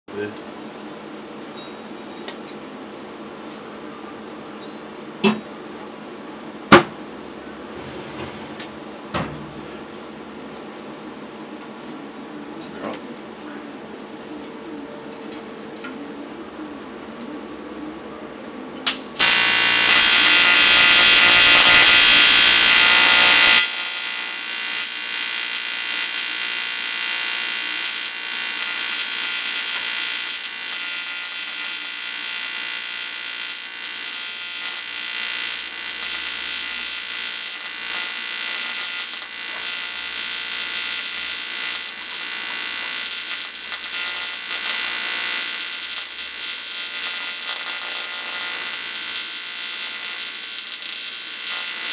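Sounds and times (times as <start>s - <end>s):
welding arc hiss and buzz: 19.2s - 51.9s.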